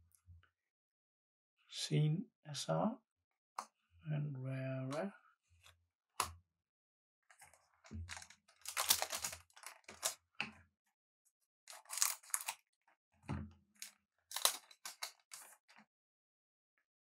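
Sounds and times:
cards handled: 8.1s - 10.2s, 11.7s - 12.6s, 14.3s - 15.6s
wrapper ripping and crinkling: 8.1s - 10.2s, 11.7s - 12.6s, 14.3s - 15.6s.

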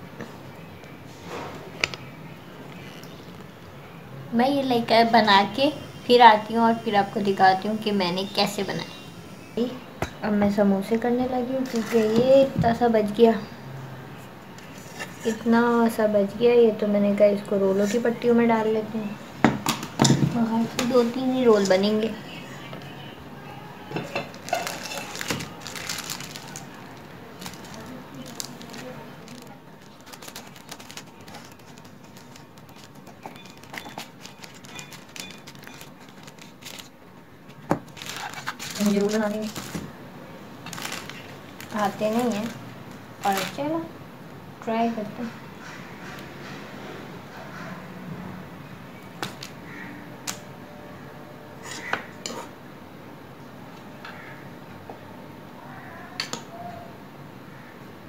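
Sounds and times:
kitchen utensils clinking: 23.9s - 25.6s
scissors cutting plastic: 24.2s - 37.0s, 37.6s - 39.8s
plastic packet crinkling: 24.2s - 43.9s.

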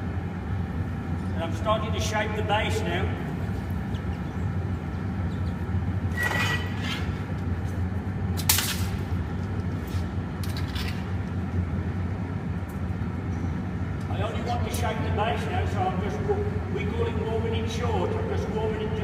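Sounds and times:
furnace hum: 0.0s - 19.0s.

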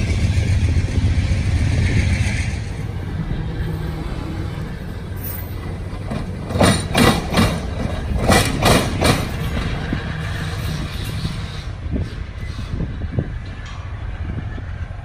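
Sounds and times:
streetcar low rumble: 0.0s - 15.0s
streetcar wheels knocking over rails: 5.3s - 10.1s.

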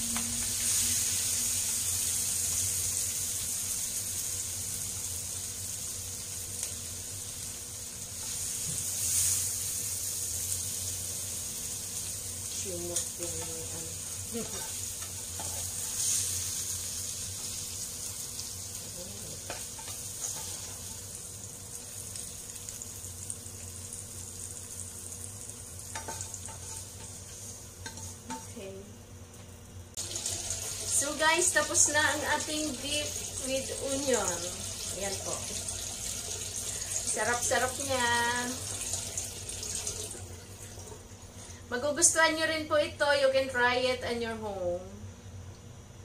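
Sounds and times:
meat and onions sizzling in pan: 0.0s - 28.6s, 29.2s - 42.6s
spatula scraping pan: 19.5s - 20.9s, 25.9s - 28.5s.

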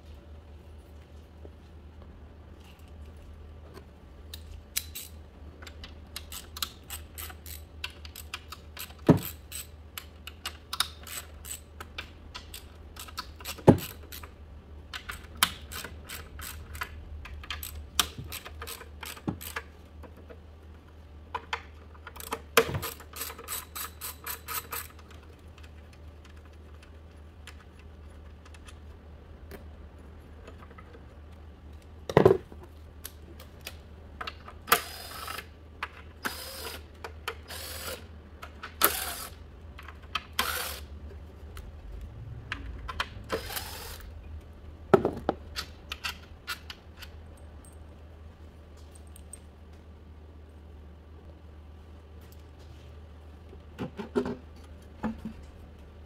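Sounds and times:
hand ratchet clicking: 6.1s - 11.7s, 12.4s - 14.3s, 15.0s - 19.6s.

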